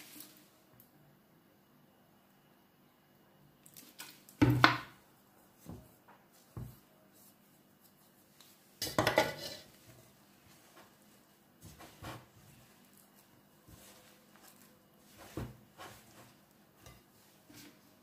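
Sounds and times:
fork scraping glass bowl: 9.3 - 9.7.

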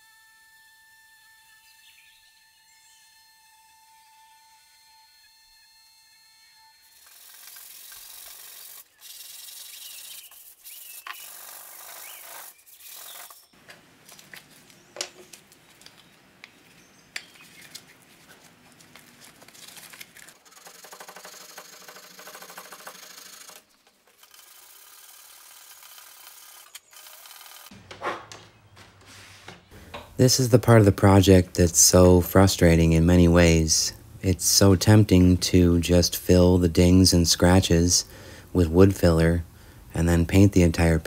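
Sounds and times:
sandpaper rubbing on wood: 6.9 - 13.4.

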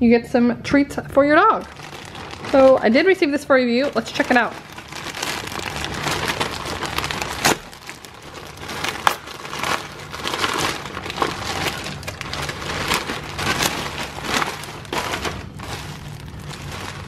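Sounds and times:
plastic bag crinkling: 1.5 - 17.0
plastic bag snaps: 6.2 - 8.0, 8.8 - 15.4.

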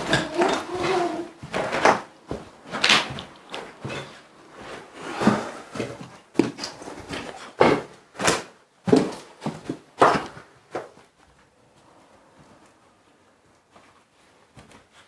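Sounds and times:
footsteps on debris: 0.0 - 11.4.

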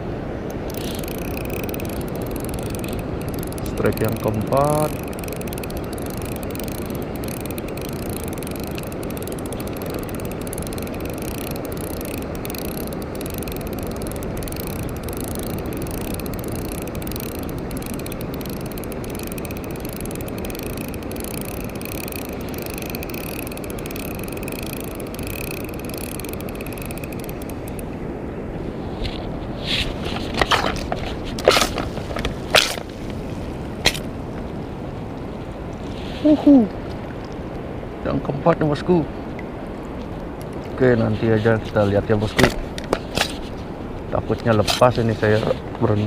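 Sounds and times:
fishing reel gears whirring: 0.5 - 27.9.

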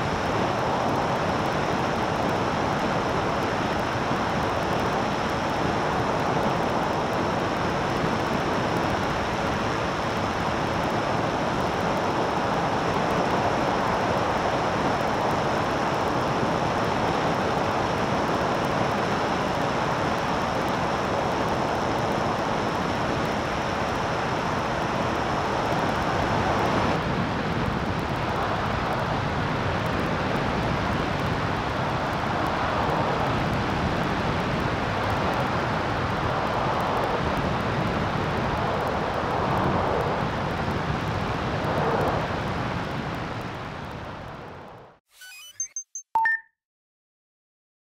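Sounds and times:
light aircraft engine drone: 0.0 - 44.9.

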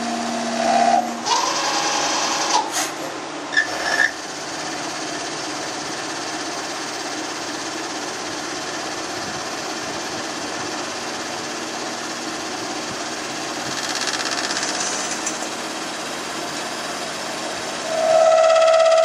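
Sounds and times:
loud steady tone: 0.0 - 1.4, 11.9 - 19.0
lathe whirring: 0.0 - 19.0.

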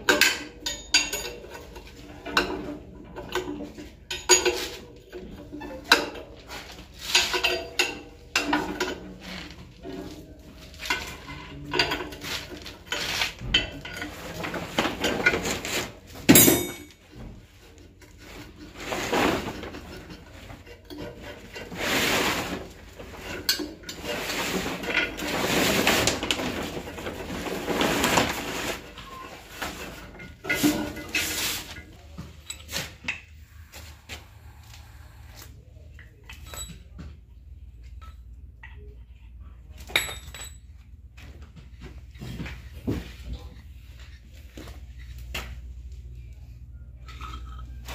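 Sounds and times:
metal clanking and scraping: 0.0 - 34.5, 35.7 - 37.2, 46.9 - 47.9
metal rubbing and scraping: 0.7 - 16.8, 17.9 - 36.7.

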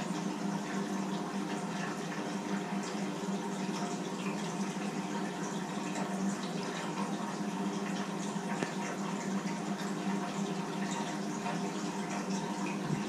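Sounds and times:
aquarium water rushing: 0.0 - 13.0.

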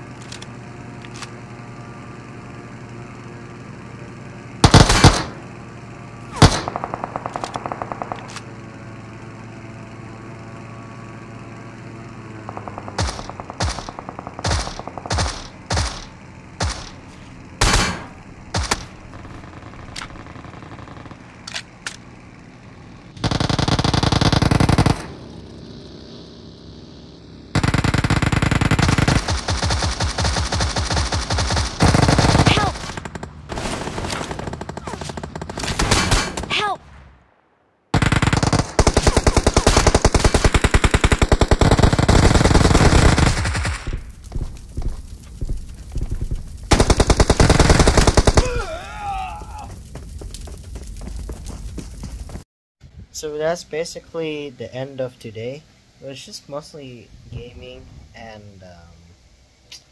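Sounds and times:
video game gunshots: 4.6 - 5.6, 6.2 - 8.5, 12.2 - 21.8, 27.5 - 37.2, 37.9 - 49.8
rapid automatic fire: 4.6 - 8.8, 12.2 - 21.8, 23.1 - 26.1, 27.5 - 36.7, 37.9 - 48.7.

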